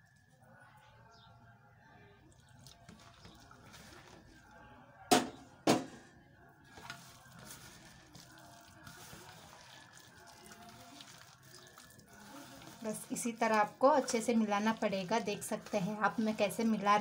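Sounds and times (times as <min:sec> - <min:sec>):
water pouring into steel bowl: 0:02.2 - 0:04.6, 0:06.7 - 0:17.0
batter squelching by hand: 0:02.3 - 0:04.8, 0:06.6 - 0:17.0.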